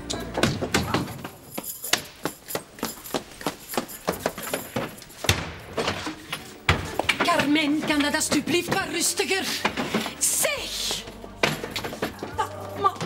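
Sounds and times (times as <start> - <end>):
rummaging through wooden cabinet: 2.6 - 13.0.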